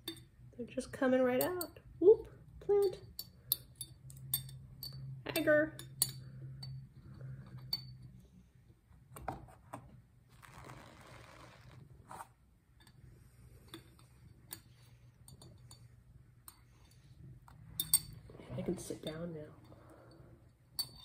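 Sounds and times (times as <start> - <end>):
metal hook clinking in glass: 17.8 - 19.4.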